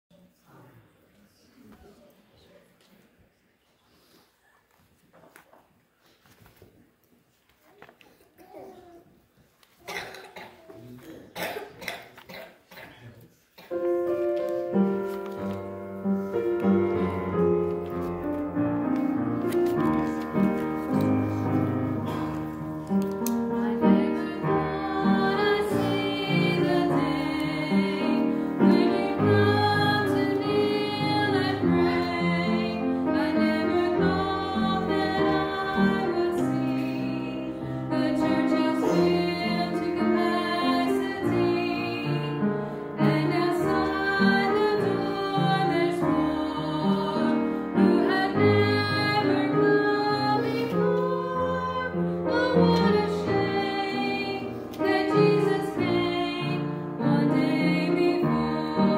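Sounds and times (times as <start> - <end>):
piano accompaniment: 13.6 - 58.9
women singing gospel song: 23.3 - 58.9.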